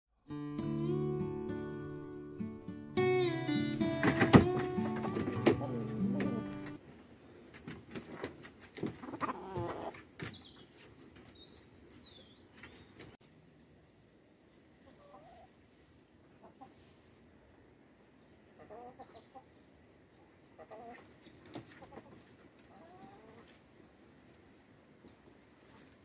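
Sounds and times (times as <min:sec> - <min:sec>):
chickens clucking: 0:03.9 - 0:06.8, 0:07.5 - 0:10.3, 0:14.8 - 0:17.1, 0:18.5 - 0:19.5, 0:20.2 - 0:23.6.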